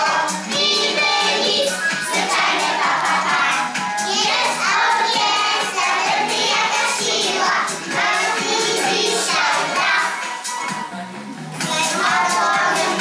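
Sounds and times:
children singing together: 0.0s - 10.8s, 11.6s - 13.0s
musical accompaniment: 0.0s - 13.0s.

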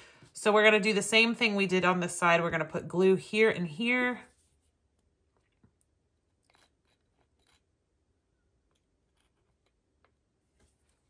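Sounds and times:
faint small clicks and scratches: 4.6s - 7.8s, 8.5s - 11.0s.

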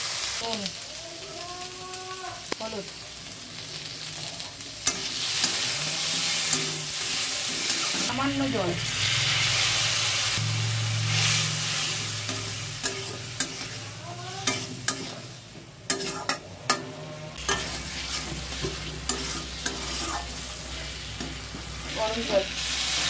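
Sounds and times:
food sizzling in oil: 0.0s - 23.0s
metal spatula scraping a pan: 4.8s - 23.0s.

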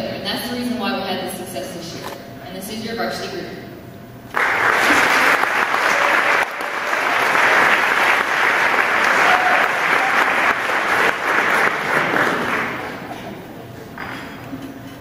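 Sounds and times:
audience applauding: 4.3s - 13.5s.

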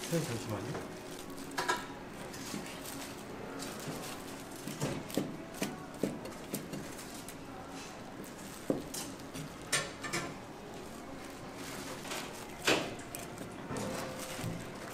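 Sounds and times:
utensils and dishes clattering: 0.0s - 7.3s, 8.4s - 11.0s
steady background noise: 0.0s - 14.9s.

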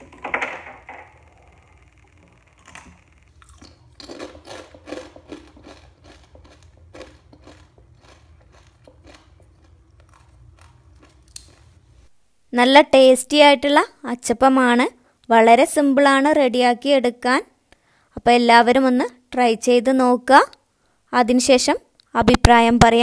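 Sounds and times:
crunchy cookie being chewed: 2.5s - 11.8s.

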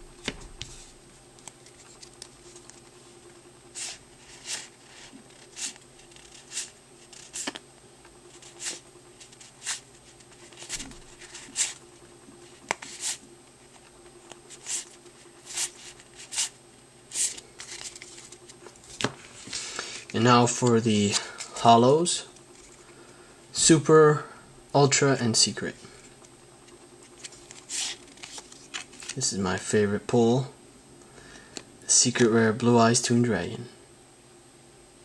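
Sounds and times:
cards swishing against cards: 3.7s - 7.6s, 8.3s - 21.6s, 26.7s - 29.2s.

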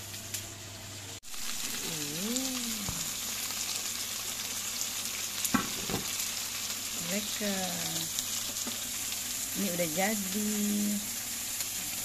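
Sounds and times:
food sizzling in oil: 0.0s - 12.0s
voice-like hum: 1.7s - 3.1s.

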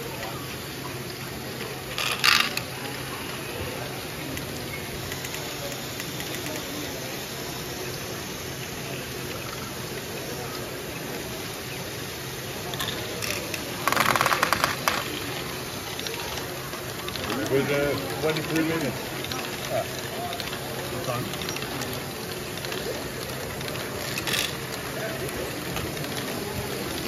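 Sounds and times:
plastic balls clattering: 1.9s - 2.7s, 12.8s - 15.4s, 23.7s - 24.9s
plastic balls clicking: 1.9s - 2.7s, 12.8s - 15.4s, 23.7s - 24.8s.

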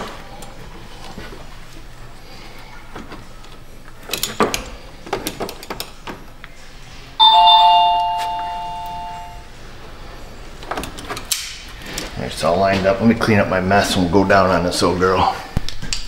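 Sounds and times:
two-note doorbell chime: 7.2s - 9.4s.

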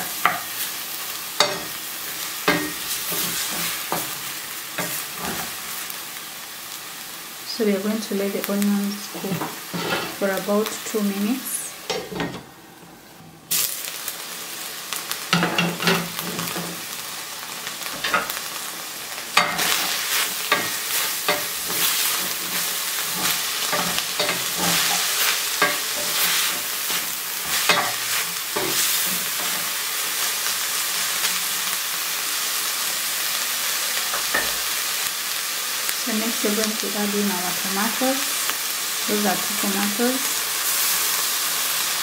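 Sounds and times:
meat and onions sizzling in pan: 0.0s - 42.0s
wooden spatula scraping pan: 9.2s - 10.2s.

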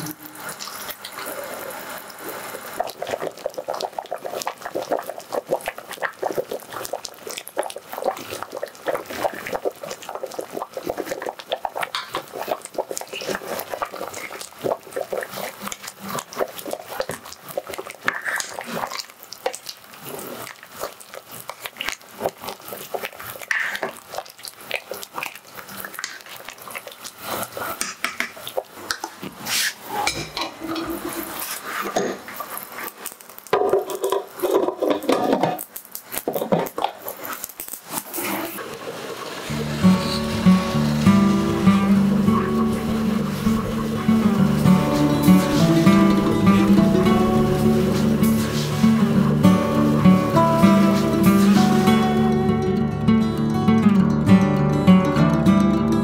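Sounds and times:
stew boiling with pops: 0.0s - 56.0s
ladle stirring in metal pot: 2.8s - 19.2s, 39.6s - 51.9s.

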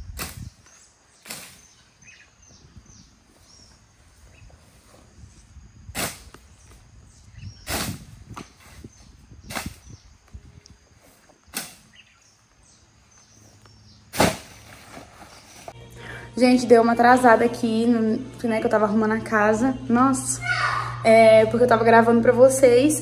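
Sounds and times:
brush hook swishing through weeds: 11.5s - 11.9s.

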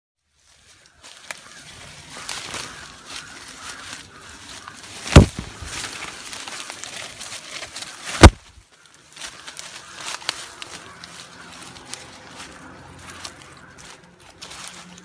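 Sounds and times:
rustling through dry leaves: 0.2s - 15.0s
loud thump: 5.1s - 5.7s.

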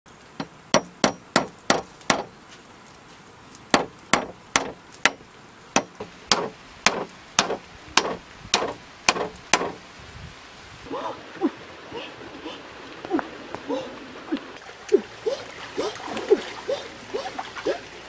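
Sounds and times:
hammer striking a nail: 0.4s - 2.3s, 3.8s - 5.2s, 5.8s - 9.8s.

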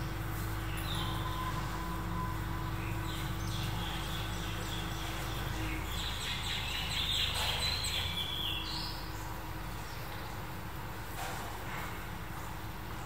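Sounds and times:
small birds chirping: 0.0s - 10.4s
steady low hum: 0.0s - 13.0s.

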